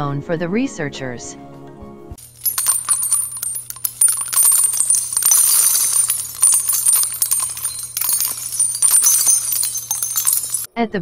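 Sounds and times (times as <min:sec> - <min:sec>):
jingling metallic clinks: 0:02.2 - 0:10.7.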